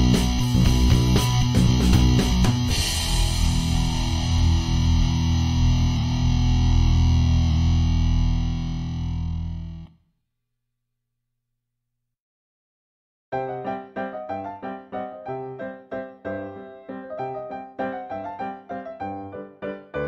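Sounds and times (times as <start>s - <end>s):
rock music with electric guitar: 0.0s - 9.9s.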